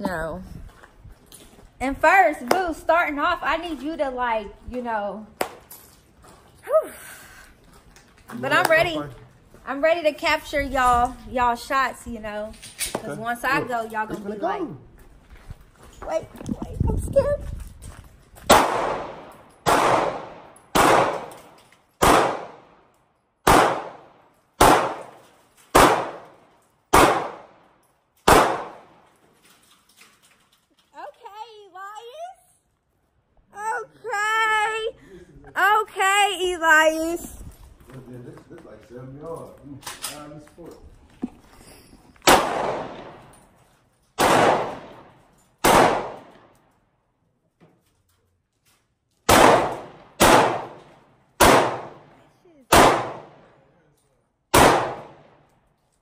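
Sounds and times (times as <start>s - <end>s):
handgun shots with echo: 18.5s - 22.6s, 23.4s - 27.5s, 28.3s - 28.9s, 42.2s - 43.3s, 44.2s - 46.4s, 49.3s - 53.4s, 54.5s - 55.3s.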